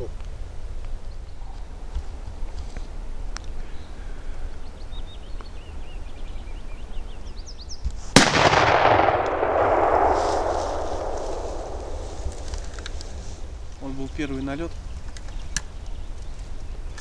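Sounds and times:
shotgun shot echoing: 0:08.2 - 0:13.2.

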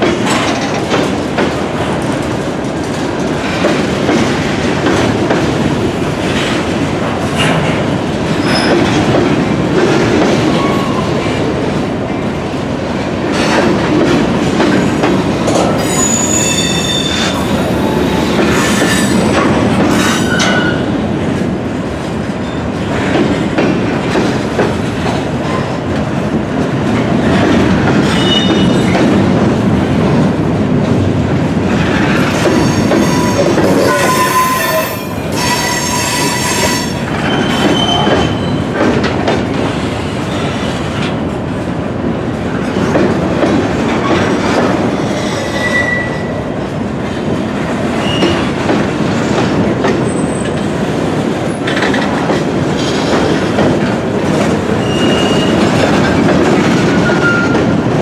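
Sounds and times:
freight train wheels rumbling: 0:00.0 - 0:58.0
shrill wheel squeals: 0:15.8 - 0:19.2, 0:32.6 - 0:38.6, 0:45.2 - 0:46.3, 0:54.8 - 0:55.6.

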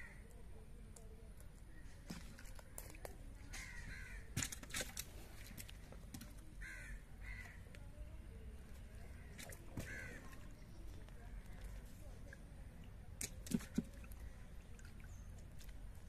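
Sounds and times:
crows cawing: 0:03.5 - 0:04.4, 0:06.6 - 0:07.6, 0:09.1 - 0:10.4
splashes in shallow water: 0:04.3 - 0:06.6, 0:09.0 - 0:16.0.

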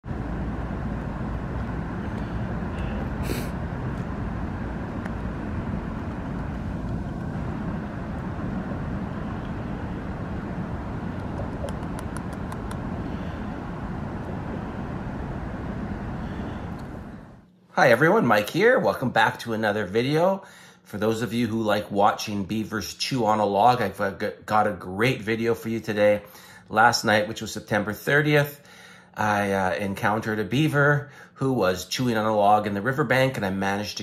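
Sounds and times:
low background rumble: 0:00.0 - 0:18.4.

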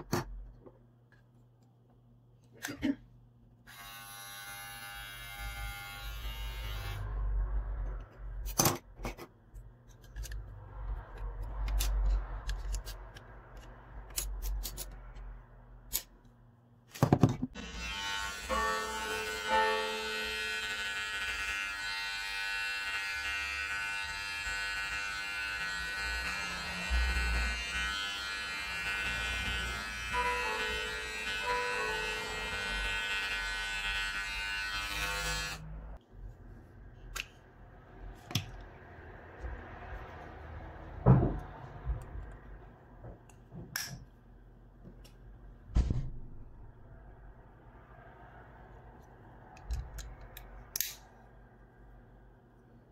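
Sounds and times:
electric hair clipper buzzing: 0:03.7 - 0:07.1, 0:17.6 - 0:35.7.

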